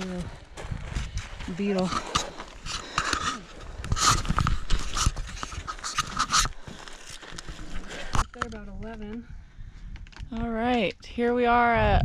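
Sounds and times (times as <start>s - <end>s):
person breathing hard: 1.2s - 4.6s
low microphone rumble: 7.5s - 12.0s.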